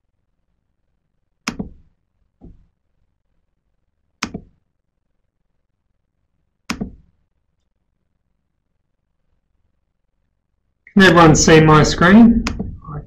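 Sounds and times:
sharp knocks: 1.5s - 2.7s, 4.2s - 4.6s, 6.7s - 7.1s.

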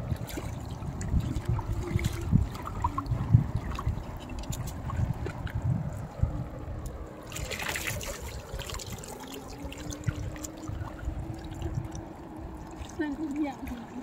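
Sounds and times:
low rumble: 0.0s - 13.0s
faint steady drone: 0.0s - 14.0s
water pouring from a net: 7.2s - 14.0s.

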